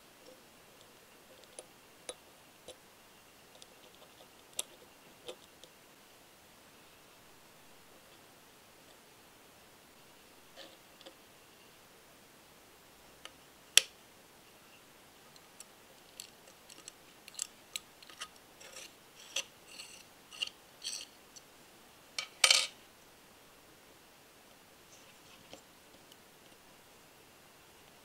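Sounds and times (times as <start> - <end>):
small metal parts clicking: 15.6 - 21.1.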